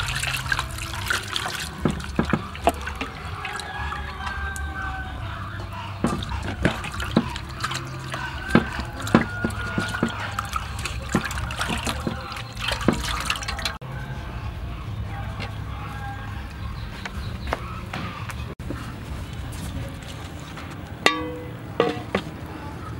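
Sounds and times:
water splashing and dripping: 0:00.0 - 0:13.8.

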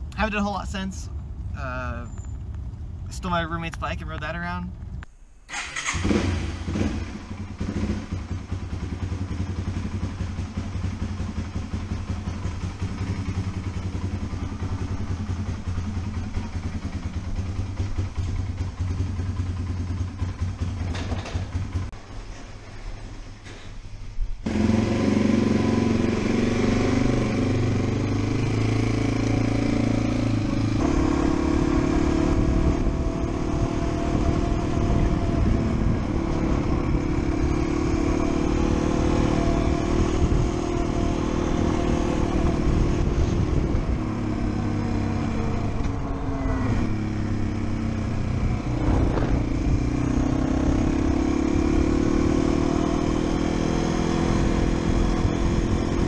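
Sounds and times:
motorcycle engine running: 0:05.8 - 0:22.0, 0:24.4 - 0:56.0
wind rushing over helmet: 0:39.2 - 0:51.2.

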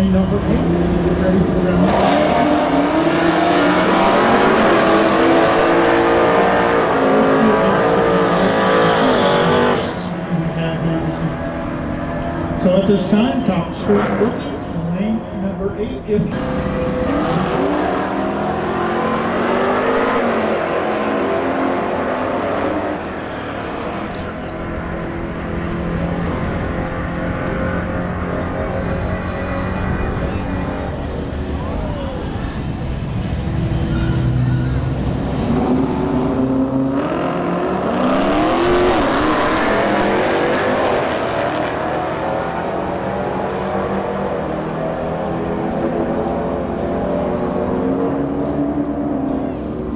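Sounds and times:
muscle car engines running: 0:00.0 - 0:49.9.

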